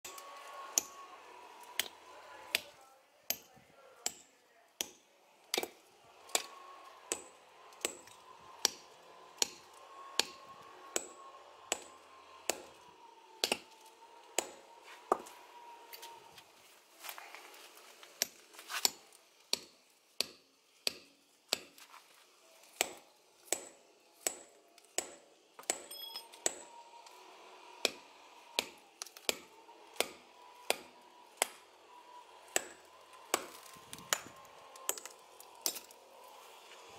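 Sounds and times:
hammer striking steel wedges: 0.1s - 1.0s, 4.8s - 12.8s, 13.4s - 13.7s, 14.3s - 16.2s, 18.2s - 21.8s, 22.8s - 26.7s, 27.8s - 36.0s
thin metallic ring: 25.9s - 26.4s.

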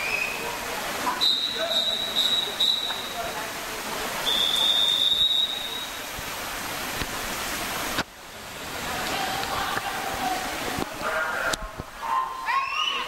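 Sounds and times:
pool hall background noise: 0.0s - 13.0s
long whistle blast: 1.2s - 3.2s, 4.2s - 6.0s.

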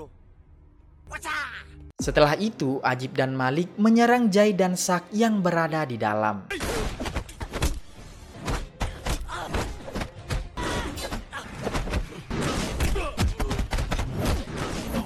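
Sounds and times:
punches and body thuds: 6.5s - 15.0s.

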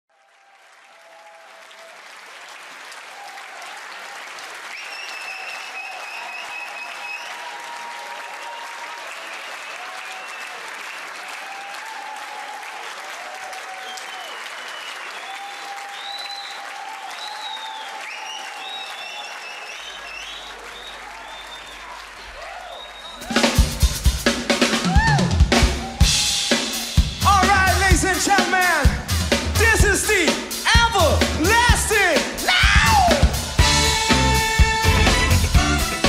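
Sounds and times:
audience applauding and cheering: 0.1s - 36.0s
audience shouts: 3.1s - 23.8s, 24.7s - 29.0s, 29.6s - 36.0s
high whistles: 4.7s - 7.6s, 9.2s - 11.8s, 13.8s - 23.6s.

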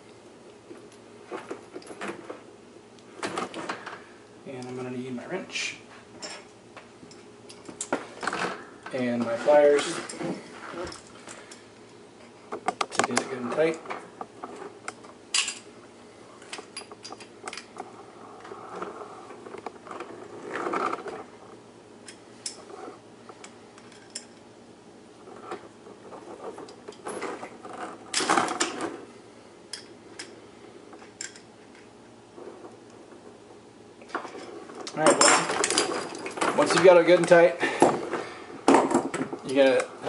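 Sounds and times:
metal tools clattering: 34.3s - 37.5s.

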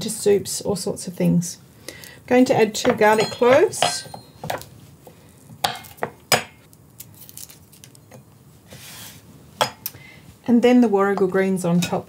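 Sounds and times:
clinks against glass bowl: 3.0s - 4.5s.

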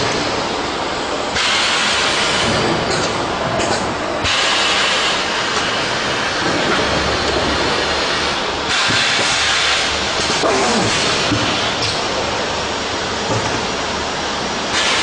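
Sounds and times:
packaging machine hissing: 4.2s - 12.4s, 14.7s - 15.0s.

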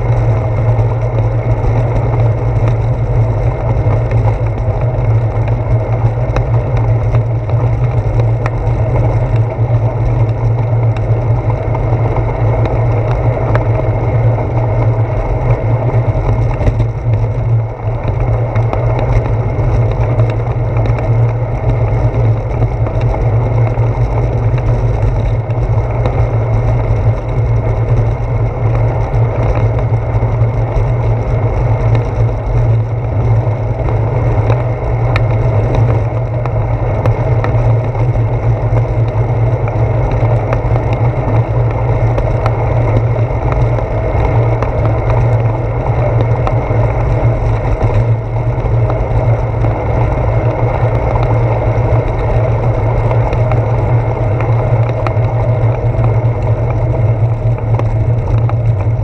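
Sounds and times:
bicycle rattles and knocks: 0.0s - 59.0s
wind on microphone: 0.0s - 59.0s.

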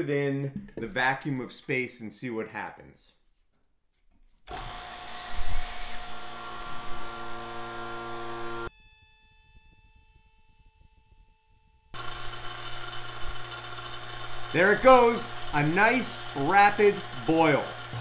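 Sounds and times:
vacuum pump running: 12.0s - 18.0s.

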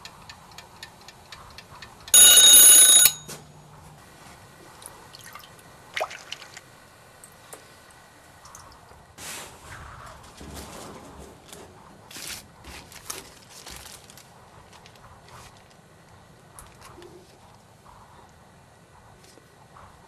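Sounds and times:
alarm clock ticking: 0.0s - 3.3s
alarm clock bell ringing: 2.1s - 3.4s.

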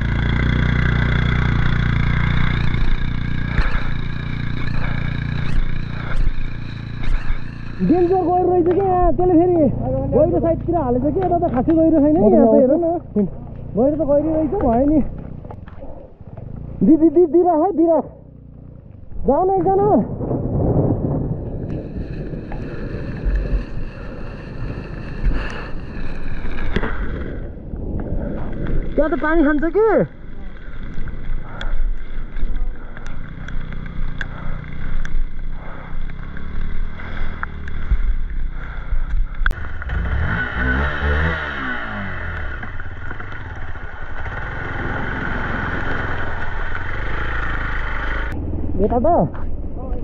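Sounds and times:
scooter engine running: 0.0s - 19.8s, 20.4s - 27.6s, 29.0s - 49.9s
wind buffeting microphone: 18.9s - 50.0s.

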